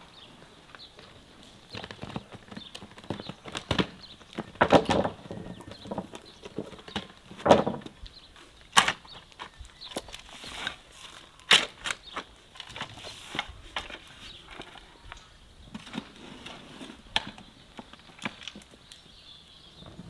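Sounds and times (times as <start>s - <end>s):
wheelbarrow clattering over rough ground: 1.0s - 8.0s.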